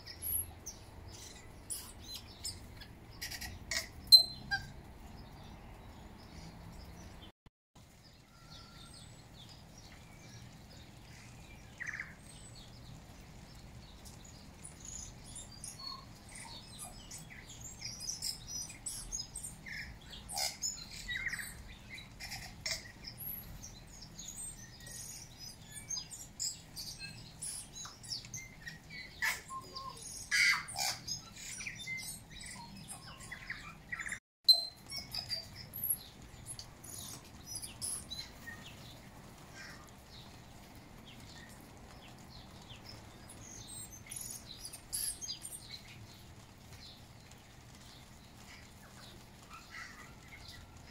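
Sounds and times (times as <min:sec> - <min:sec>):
bird calling with high chirps: 0:00.0 - 0:04.9, 0:08.2 - 0:12.8, 0:14.0 - 0:40.4, 0:42.5 - 0:46.0.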